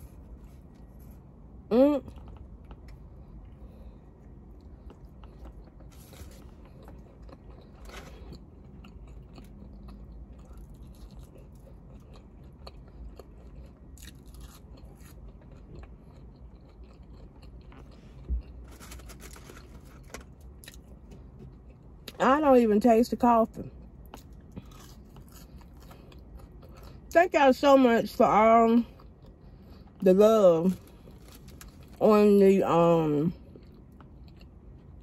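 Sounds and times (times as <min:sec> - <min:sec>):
low hum: 0:00.0 - 0:27.1
person chewing food: 0:02.1 - 0:22.2, 0:23.7 - 0:27.1, 0:28.9 - 0:30.0, 0:30.7 - 0:32.0, 0:33.4 - 0:35.0
paper wrappers rustling: 0:18.7 - 0:20.2.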